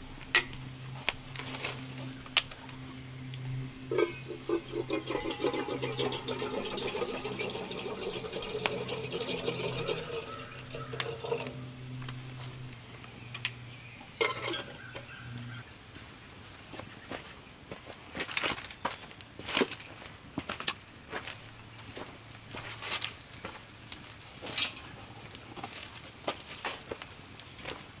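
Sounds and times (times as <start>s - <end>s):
water boiling in metal kettle: 3.5s - 13.1s, 14.1s - 15.2s
kettle lid clanking: 3.9s - 11.7s, 14.2s - 15.1s.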